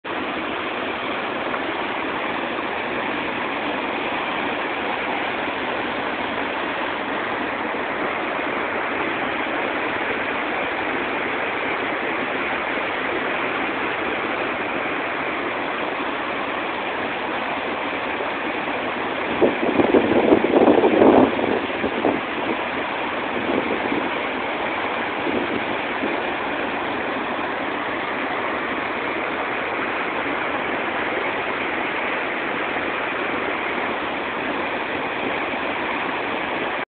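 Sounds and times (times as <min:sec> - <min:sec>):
river water rushing: 0:00.1 - 0:36.9.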